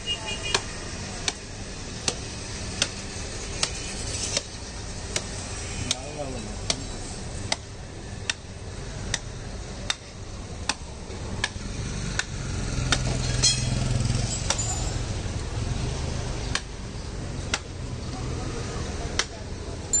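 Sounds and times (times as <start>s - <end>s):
traffic engine hum: 0.0s - 20.0s
heavy knife chopping meat: 5.1s - 8.5s, 9.1s - 10.8s, 11.4s - 13.2s.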